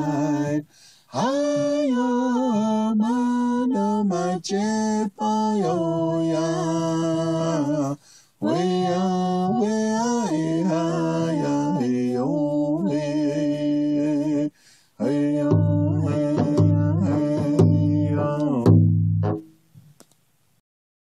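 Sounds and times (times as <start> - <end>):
person singing long held notes: 0.0 - 19.4
low beats: 15.4 - 19.5.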